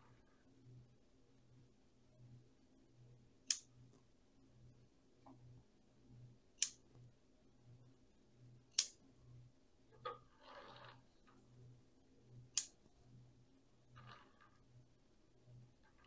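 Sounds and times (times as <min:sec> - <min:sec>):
scissors snipping shoots: 0:08.7 - 0:09.0.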